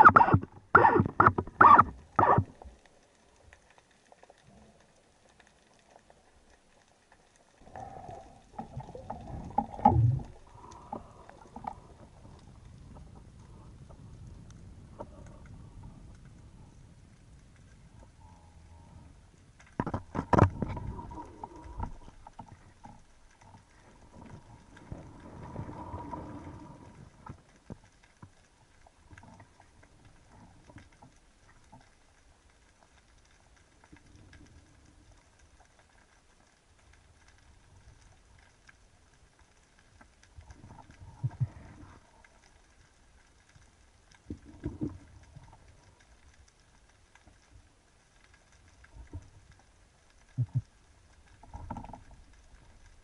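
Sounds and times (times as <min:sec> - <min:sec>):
muffled underwater knocks and clicks: 0:00.0 - 0:02.8, 0:08.5 - 0:14.2, 0:19.6 - 0:24.9, 0:44.2 - 0:45.7, 0:50.2 - 0:52.5
faint water noise: 0:00.0 - 0:53.0.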